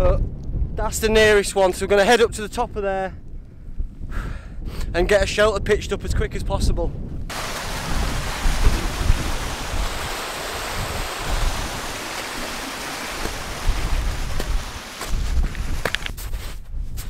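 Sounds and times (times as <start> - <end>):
wind buffeting microphone: 0.0 - 17.0
stream running over rocks: 7.3 - 16.1.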